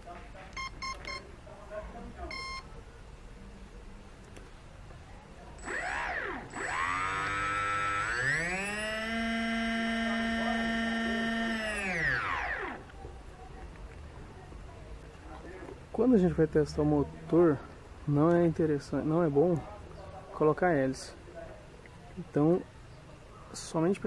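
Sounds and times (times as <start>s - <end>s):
short electronic beep: 2.3s - 2.7s
electric motor whining: 5.6s - 12.9s.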